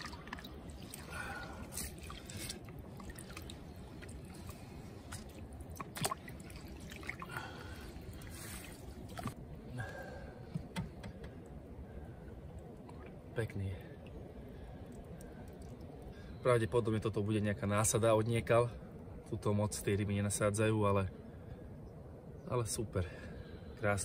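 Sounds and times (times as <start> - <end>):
water dripping and trickling: 0.0 - 9.4, 14.8 - 16.2.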